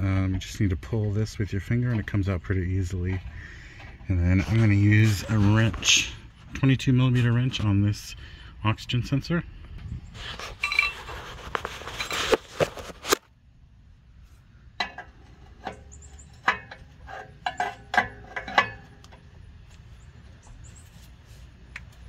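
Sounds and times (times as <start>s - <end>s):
rustling handling noise: 10.2s - 13.3s.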